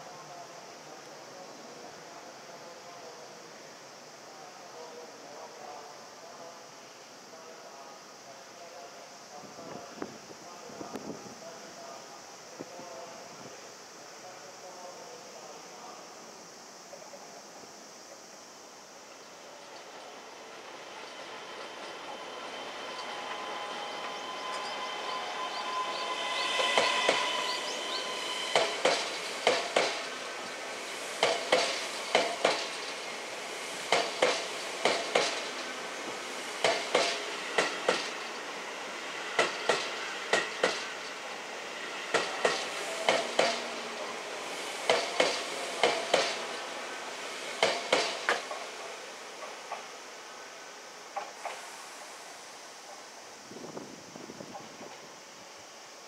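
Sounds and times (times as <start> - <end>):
electric train whine: 6.2 - 56.0
wheels clacking over rail joints: 31.2 - 33.0, 33.9 - 35.7, 36.6 - 38.3, 39.4 - 41.2, 42.1 - 44.0, 44.8 - 46.5, 47.6 - 48.7.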